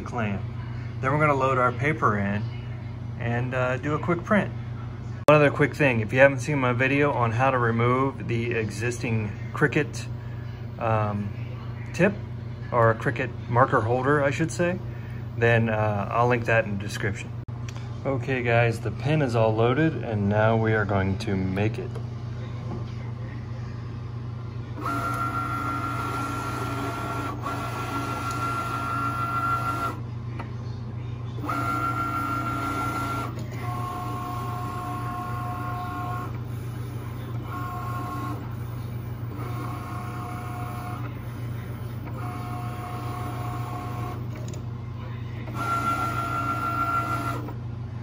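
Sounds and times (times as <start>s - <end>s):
steady low hum: 0.0s - 48.0s
cutting machine motors whining: 24.8s - 30.0s, 31.4s - 44.6s, 45.3s - 47.6s.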